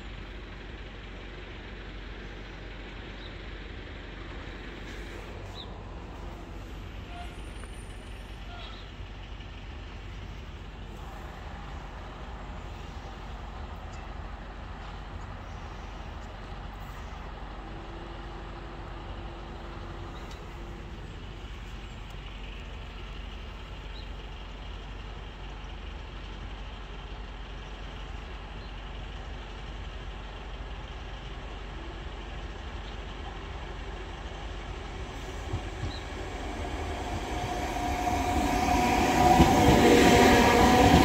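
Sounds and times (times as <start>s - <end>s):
road traffic rumble: 0.0s - 41.0s
steady tone: 34.8s - 41.0s.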